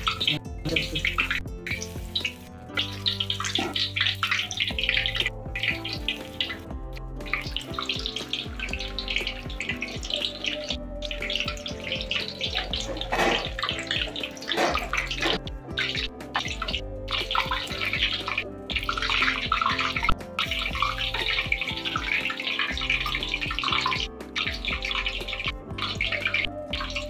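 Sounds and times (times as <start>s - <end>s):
background music: 0.0s - 27.0s
hot oil sizzling: 0.0s - 27.0s.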